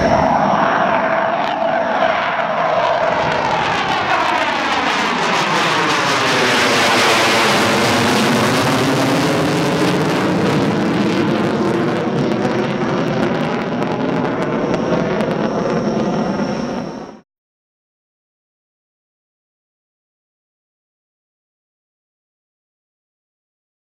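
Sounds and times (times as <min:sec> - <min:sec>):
jet engine roar: 0:00.0 - 0:17.2.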